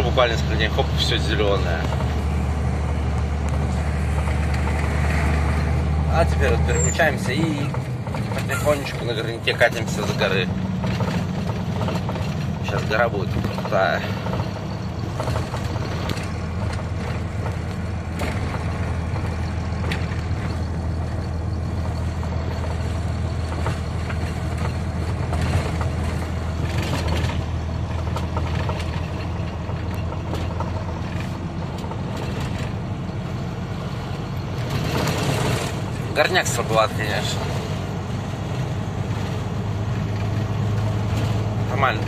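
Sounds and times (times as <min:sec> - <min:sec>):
diesel engine droning: 0:00.0 - 0:42.0
truck knocks and rattles: 0:00.0 - 0:42.0.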